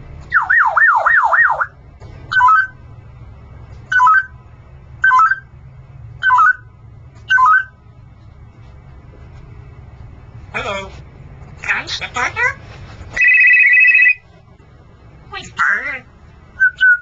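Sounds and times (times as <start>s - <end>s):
parrot whistling siren imitation: 0.3s - 2.8s, 3.9s - 4.3s, 5.0s - 5.5s, 6.2s - 6.7s, 7.3s - 7.8s, 13.2s - 14.2s, 16.6s - 17.0s.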